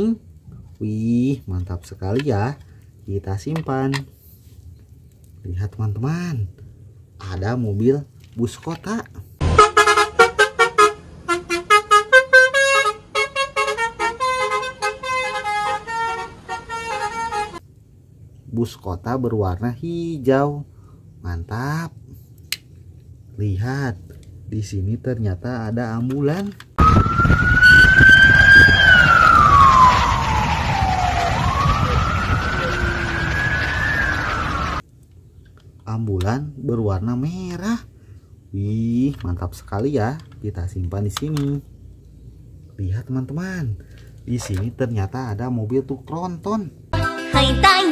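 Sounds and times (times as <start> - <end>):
toy siren wailing: 26.8 - 34.8.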